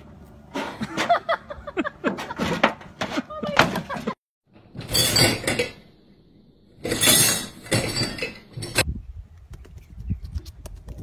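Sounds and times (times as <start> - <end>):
dishwasher racks and dishes rattling: 2.0 - 5.9, 6.8 - 8.8.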